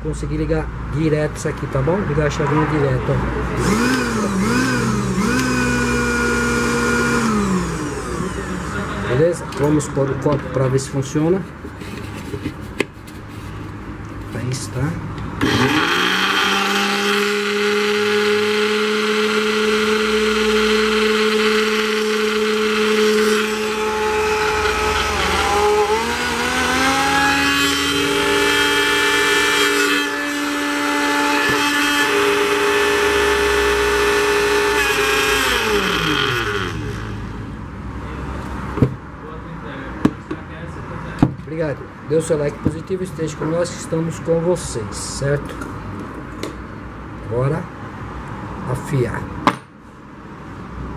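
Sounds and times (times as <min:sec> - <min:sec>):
blender motor running: 0:03.6 - 0:09.1, 0:15.4 - 0:37.3.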